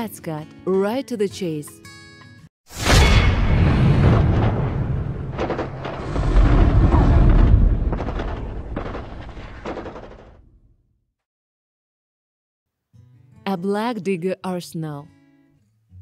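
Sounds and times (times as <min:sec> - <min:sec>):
booms: 0:02.7 - 0:10.7
gunshots: 0:02.8 - 0:10.4
deep continuous rumble: 0:03.6 - 0:10.4.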